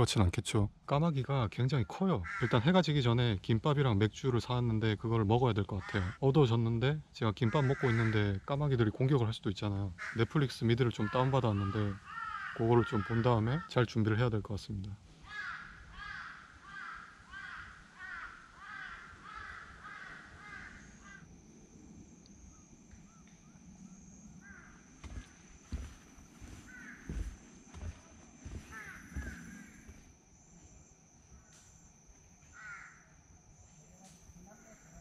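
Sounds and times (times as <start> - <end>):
crows cawing: 2.2 - 2.8, 5.8 - 6.2, 7.4 - 8.4, 9.9 - 13.8, 15.2 - 21.3, 24.4 - 30.1, 32.5 - 33.1.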